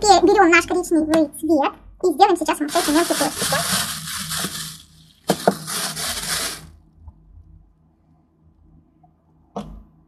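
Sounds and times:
faint steady hum: 0.0s - 10.0s
plastic bag crinkling: 2.5s - 6.8s.

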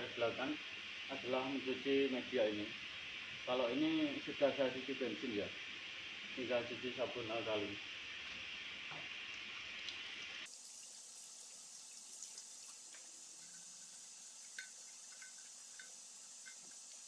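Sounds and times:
tap water running and splashing: 4.0s - 17.0s
water drips: 8.2s - 17.0s.

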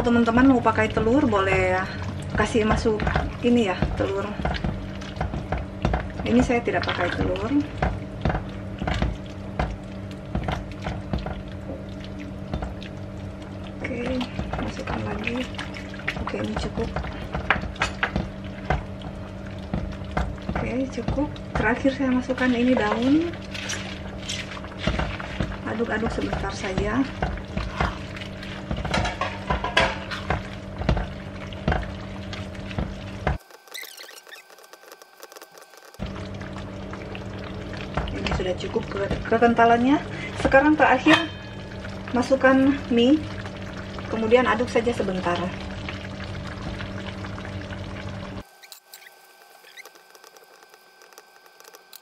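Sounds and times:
steady low hum: 0.0s - 52.0s
spatula stirring in frying pan: 14.2s - 36.1s, 48.4s - 52.0s.

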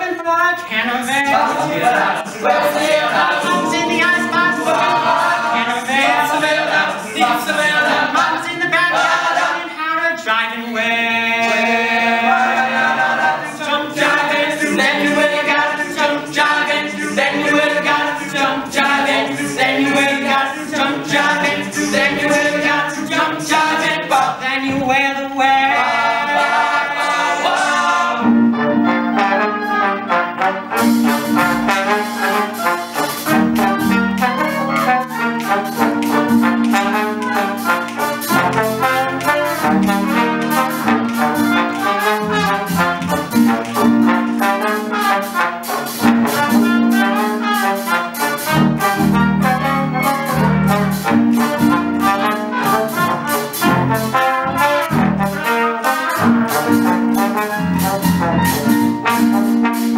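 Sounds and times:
vocal percussion beat: 0.5s - 28.3s, 30.7s - 59.9s
backing voices singing: 1.0s - 28.6s
horns playing held notes: 25.7s - 59.9s.

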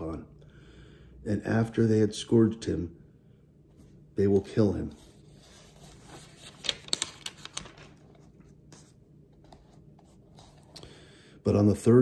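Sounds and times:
faint room hum: 0.0s - 12.0s
paper rustling: 4.2s - 10.8s.

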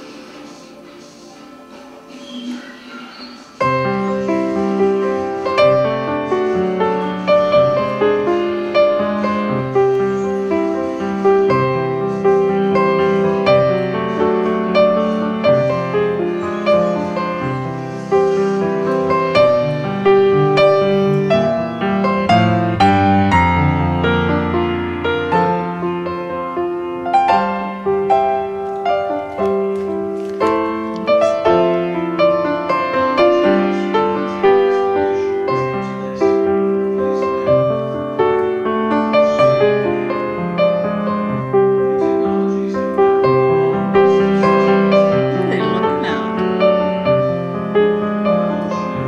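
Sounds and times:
piano notes and chords: 0.0s - 49.0s.

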